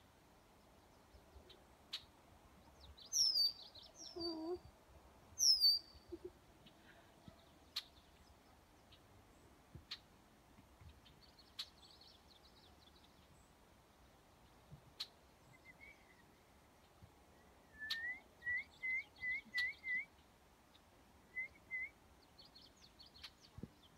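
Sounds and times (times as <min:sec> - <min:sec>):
songbird whistling rising notes: 0:05.4 - 0:06.0, 0:17.7 - 0:20.1, 0:21.3 - 0:22.0.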